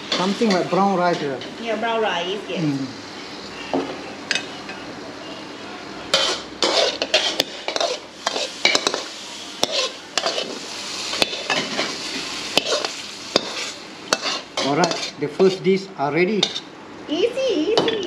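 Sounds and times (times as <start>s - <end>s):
metal ladle scraping a wok: 6.1s - 15.2s.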